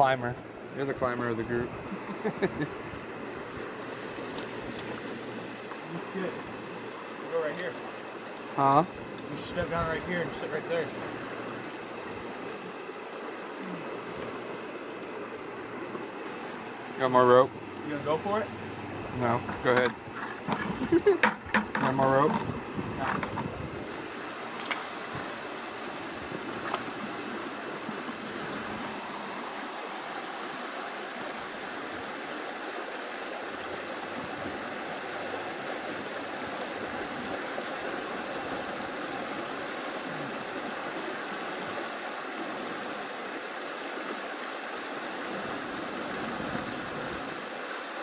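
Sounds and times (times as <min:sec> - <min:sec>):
thin high steady tone: 0:00.0 - 0:42.1
running water rushing: 0:00.0 - 0:48.0.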